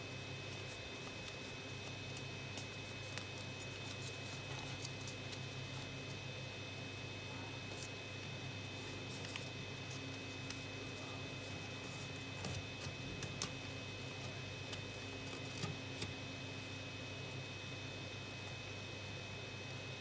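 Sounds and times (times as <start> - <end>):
steady background hum: 0.0 - 20.0
paper rustling: 8.7 - 16.1.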